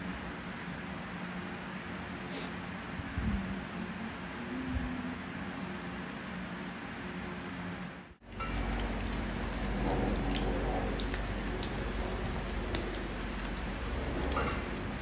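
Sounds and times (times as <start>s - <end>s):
food sizzling in hot oil: 8.2s - 15.0s
oil popping: 8.2s - 15.0s.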